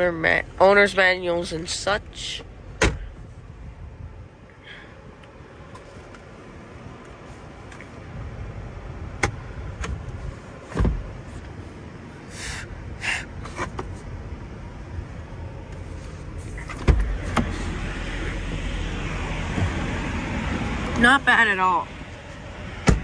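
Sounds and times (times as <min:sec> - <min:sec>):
car door opening thump: 0:02.8 - 0:03.3, 0:10.7 - 0:11.1, 0:16.6 - 0:17.7, 0:19.4 - 0:20.1, 0:22.8 - 0:23.0
sun visor mirror cover snapping: 0:09.2 - 0:10.2.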